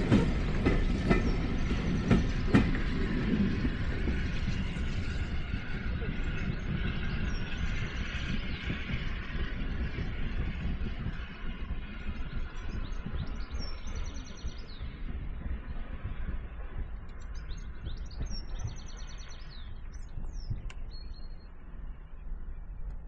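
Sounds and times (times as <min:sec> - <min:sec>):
songbird singing: 0:00.0 - 0:02.9, 0:12.2 - 0:23.0
steady low rumble: 0:00.0 - 0:23.0.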